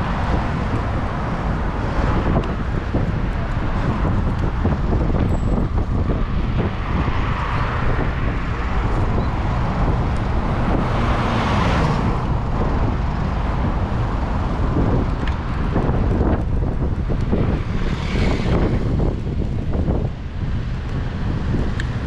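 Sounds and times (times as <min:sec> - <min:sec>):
low wind rumble on microphone: 0:00.0 - 0:22.0
road traffic driving past: 0:00.0 - 0:22.0
vehicle passing close: 0:05.0 - 0:20.1.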